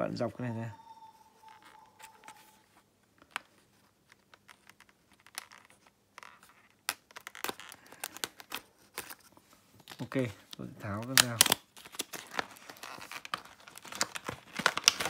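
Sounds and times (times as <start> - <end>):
plastic packaging crinkling: 3.2 - 15.0.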